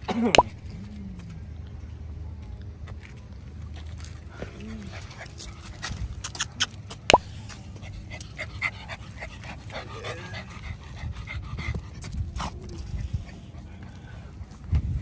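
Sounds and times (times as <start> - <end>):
dog panting: 4.4 - 14.7.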